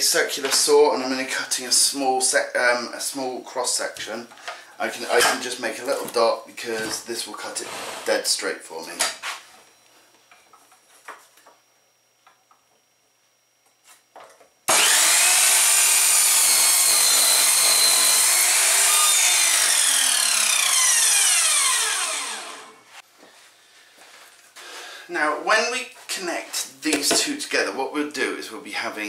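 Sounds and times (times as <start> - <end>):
mitre saw cutting wood: 14.7 - 23.0
saw winding down whine: 14.7 - 23.0.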